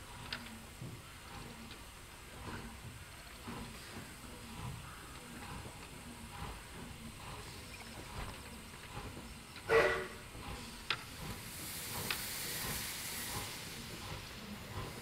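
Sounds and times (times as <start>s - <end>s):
steam hissing: 0.0s - 15.0s
steam whistle toot: 9.7s - 10.2s.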